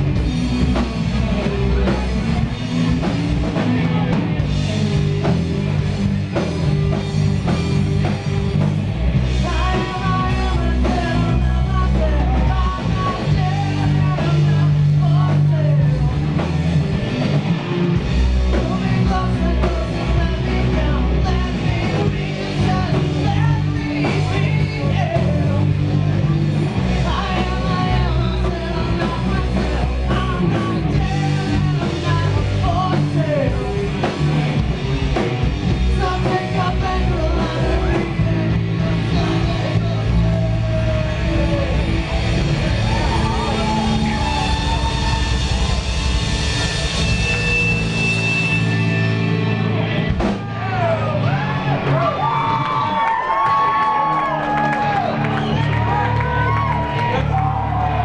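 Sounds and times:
bass guitar: 0:00.0 - 0:58.0
distorted electric guitars: 0:00.0 - 0:58.0
drum kit: 0:00.0 - 0:58.0
man singing: 0:09.4 - 0:16.5, 0:18.5 - 0:34.4, 0:35.9 - 0:44.9.

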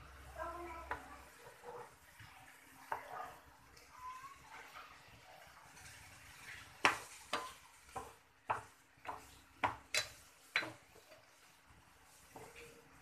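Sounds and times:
faint oil sizzling: 0:00.0 - 0:13.0.

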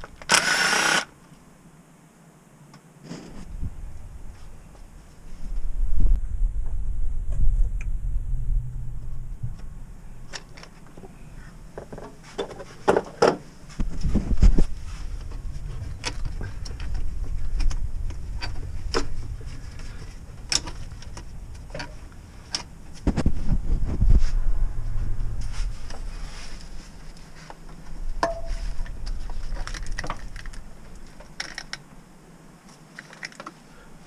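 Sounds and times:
rustling and bumping of parts: 0:09.4 - 0:24.4, 0:25.3 - 0:33.7.

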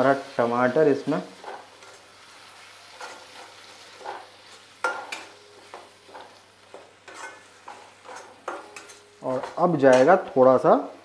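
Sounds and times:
masala sizzling: 0:00.0 - 0:11.0
metal spatula scraping a pan: 0:01.2 - 0:10.2.

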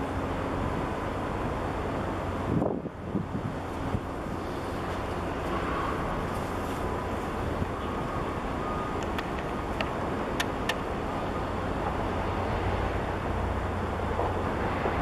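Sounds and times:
boat engine rumble: 0:00.0 - 0:15.0.

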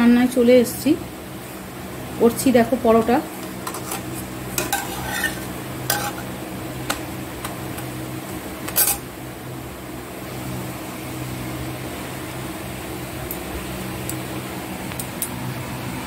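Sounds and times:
steady low hum: 0:00.0 - 0:16.0
metal spatula scraping pan: 0:03.4 - 0:06.4, 0:08.7 - 0:09.0.

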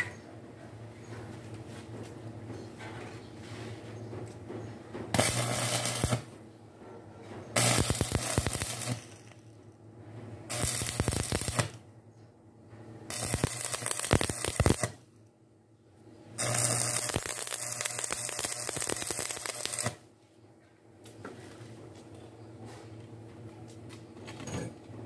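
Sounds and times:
welding arc crackling: 0:05.1 - 0:06.4, 0:07.6 - 0:09.4, 0:10.5 - 0:11.8, 0:13.1 - 0:15.0, 0:16.4 - 0:20.0.

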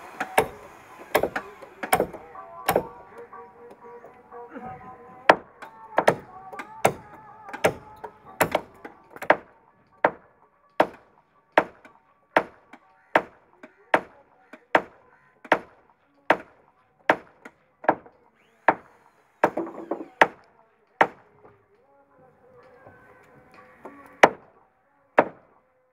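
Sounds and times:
hammer striking nail into wood: 0:00.2 - 0:03.0, 0:05.3 - 0:09.4, 0:17.1 - 0:18.1, 0:18.7 - 0:20.4.

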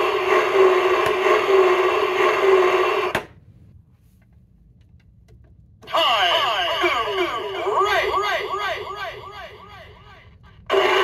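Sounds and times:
toy speaker buzzing tone: 0:10.7 - 0:11.0.

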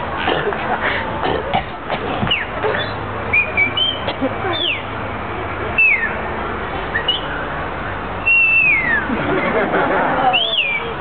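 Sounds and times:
background murmur: 0:00.0 - 0:11.0
person whistling: 0:08.2 - 0:09.1.

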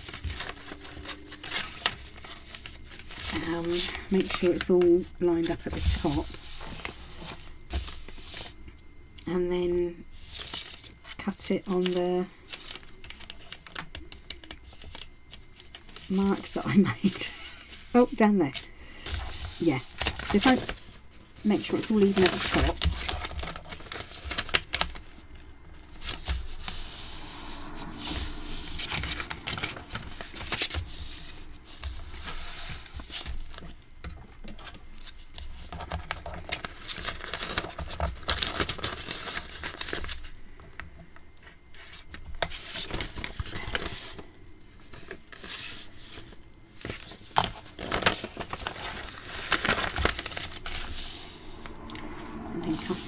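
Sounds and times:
paper bag crinkling: 0:00.0 - 0:08.6, 0:19.1 - 0:33.8, 0:34.4 - 0:40.4, 0:41.9 - 0:51.8.

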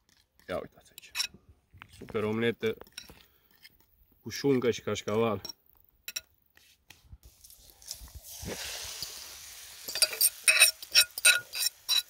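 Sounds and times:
egg mixture sizzling in a pan: 0:07.3 - 0:12.0.

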